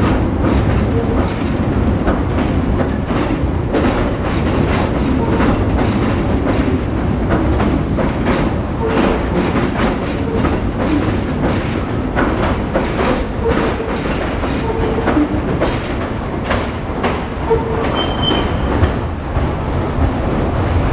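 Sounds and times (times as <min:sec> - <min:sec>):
wheels clacking over rail joints: 0:00.0 - 0:20.8
train rumbling on steel structure: 0:00.0 - 0:20.9
wheel squeals: 0:17.4 - 0:18.7.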